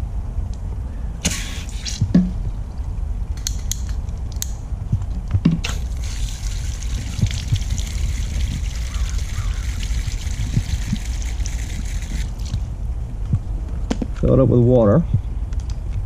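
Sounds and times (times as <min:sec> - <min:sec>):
water jetting into plastic bottle: 0:05.6 - 0:12.6.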